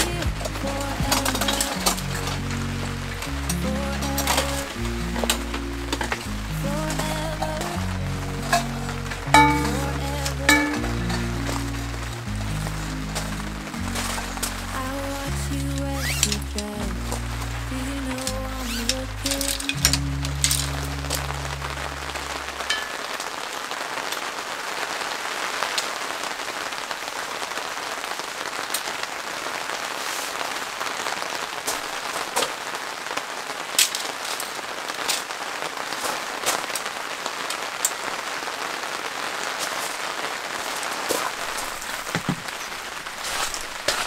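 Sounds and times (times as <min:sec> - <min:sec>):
sharp raindrop hits: 0:00.0 - 0:14.9, 0:16.1 - 0:44.0
steady rain falling: 0:00.0 - 0:44.0.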